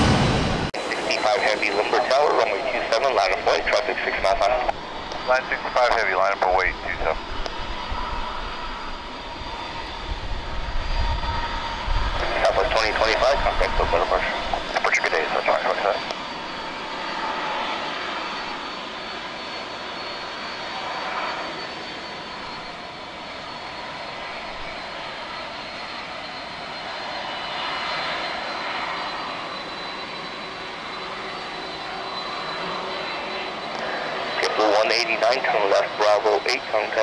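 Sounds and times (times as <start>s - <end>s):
jet engines running: 0.0s - 37.0s.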